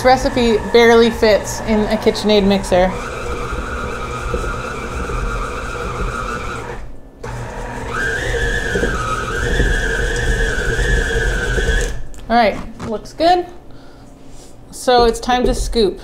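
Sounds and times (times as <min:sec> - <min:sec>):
stand mixer motor whining: 0:00.0 - 0:12.0.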